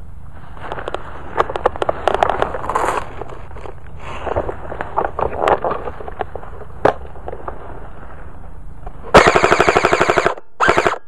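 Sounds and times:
brush rustling against gun: 0.0 - 9.2
airsoft gun firing full auto: 9.1 - 11.0.

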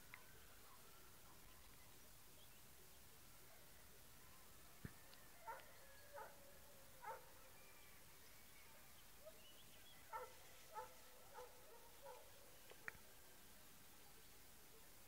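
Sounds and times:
distant animal barking: 10.1 - 12.3.

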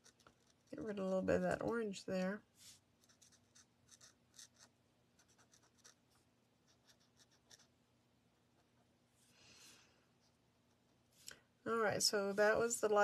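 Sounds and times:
faint steady hum: 0.0 - 13.0
pen tip scratching on cardstock: 3.0 - 6.0.

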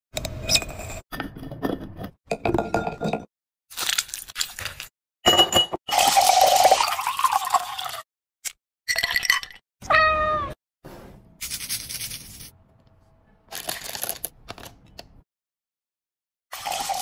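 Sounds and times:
soda pouring with fizzing hiss: 16.5 - 17.0.

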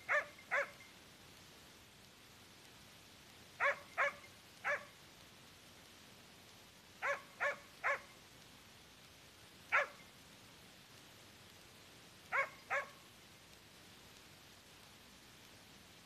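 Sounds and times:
dog barking: 0.0 - 0.8, 3.6 - 4.9, 7.0 - 8.1, 9.7 - 10.0, 12.3 - 13.0.

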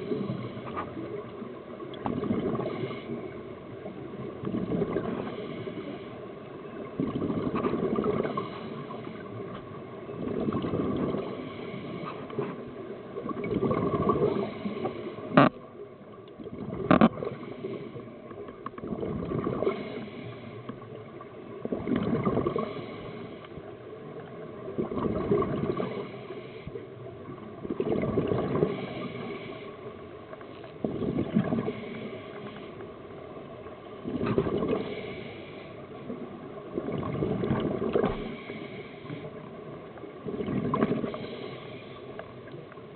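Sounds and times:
exhaled bubbles: 7.0 - 8.5, 13.2 - 14.5, 18.8 - 19.9, 21.6 - 22.8, 24.7 - 26.1, 27.6 - 29.0, 36.7 - 38.4, 40.2 - 41.2
diver breathing through regulator: 22.4 - 23.6, 28.6 - 29.8, 34.7 - 35.9, 38.2 - 39.4, 41.0 - 42.2.

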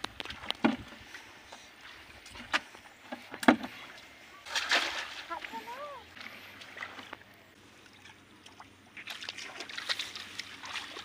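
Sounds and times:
hands splashing in muddy water: 4.4 - 5.6, 8.5 - 11.0.

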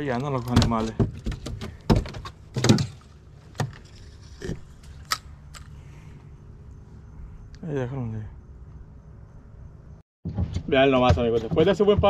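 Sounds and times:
sharp knocks and rattles: 0.0 - 5.7, 10.2 - 12.0
low steady hum: 0.0 - 10.0.

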